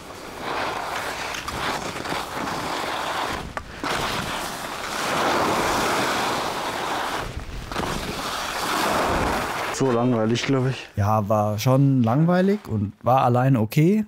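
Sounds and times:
skis scraping over snow: 0.0 - 10.9.

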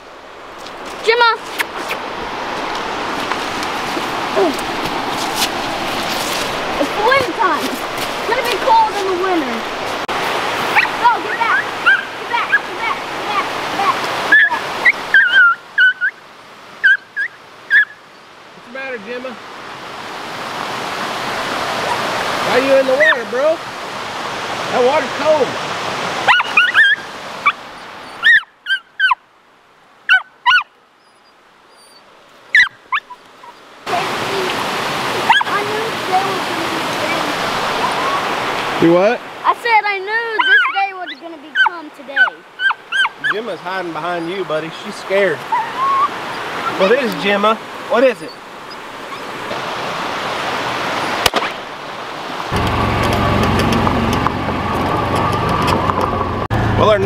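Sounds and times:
creek water rushing: 0.0 - 57.0
dog whining: 10.8 - 12.7, 14.3 - 16.2, 16.8 - 18.0, 26.3 - 29.2, 30.1 - 33.6, 35.2 - 35.5, 37.8 - 38.3, 40.4 - 43.4, 45.4 - 46.9, 48.2 - 49.3
vehicle engine with high whine: 52.5 - 57.0.

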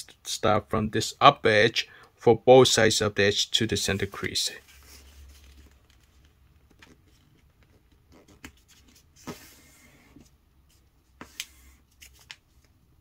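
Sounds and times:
paper rustling and sliding: 3.8 - 12.7
paper crinkles: 4.2 - 9.1.

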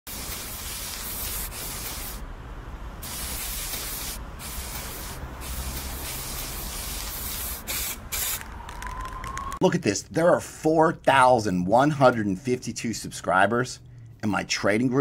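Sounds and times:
spray paint can hissing: 0.1 - 2.2, 3.0 - 8.5.

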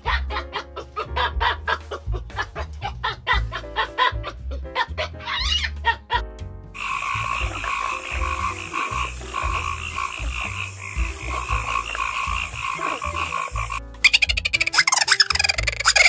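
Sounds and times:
background music: 0.0 - 16.0
frog trilling croaks: 6.8 - 16.0.

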